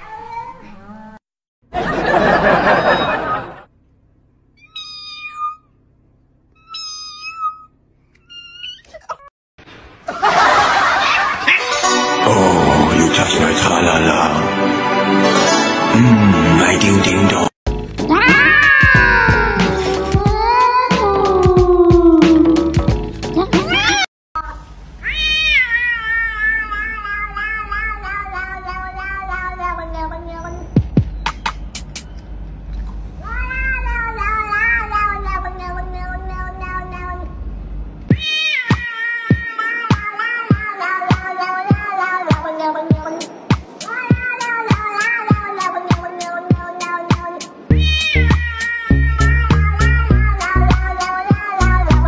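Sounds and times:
cat meowing: 4.6s - 5.7s, 6.6s - 9.3s, 18.1s - 22.6s, 23.5s - 24.1s, 25.0s - 30.8s, 33.2s - 37.4s, 38.1s - 52.0s.

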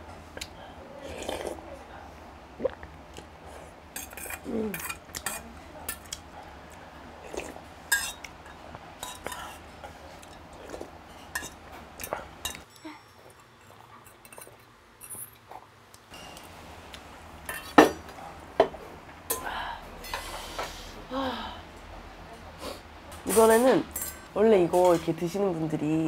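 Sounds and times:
spoon clinking against metal bowl: 7.9s - 9.4s.

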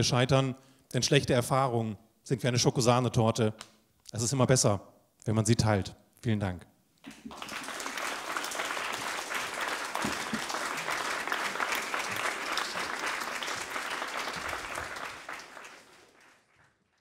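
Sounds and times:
audience applauding: 7.0s - 17.0s.

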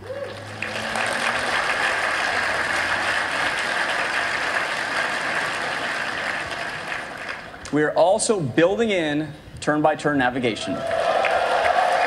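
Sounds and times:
audience applauding: 0.0s - 7.6s, 10.8s - 12.0s.

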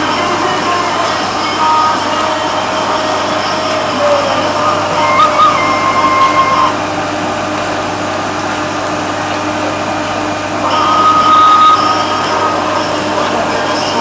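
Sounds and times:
held high tone: 0.0s - 7.0s, 10.6s - 14.0s
bathtub jet pump running: 0.0s - 14.0s
water churning and bubbling: 0.0s - 14.0s.

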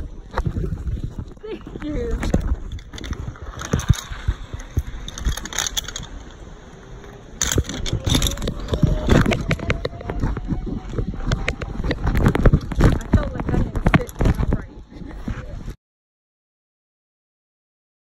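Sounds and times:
crunching footsteps: 7.0s - 15.6s.

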